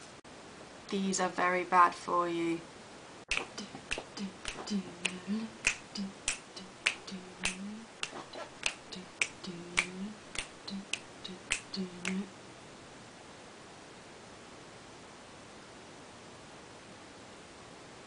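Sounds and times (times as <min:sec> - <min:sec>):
fingers snapping: 0:03.3 - 0:12.3
low hummed notes: 0:03.3 - 0:12.5.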